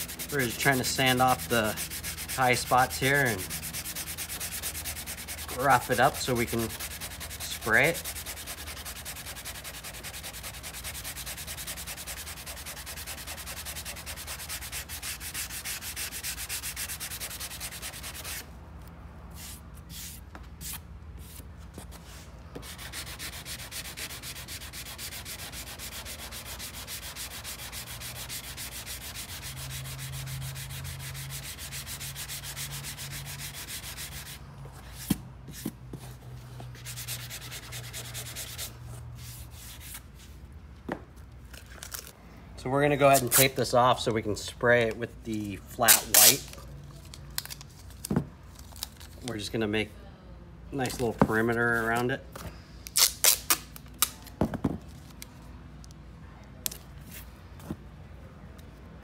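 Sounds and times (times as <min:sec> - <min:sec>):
sanding sponge rubbing: 0:00.0 - 0:18.4, 0:22.6 - 0:34.4, 0:36.7 - 0:40.0.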